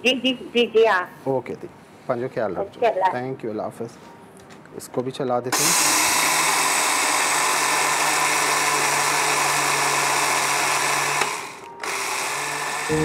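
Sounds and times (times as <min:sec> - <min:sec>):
mixer grinder whirring: 0:05.6 - 0:13.0.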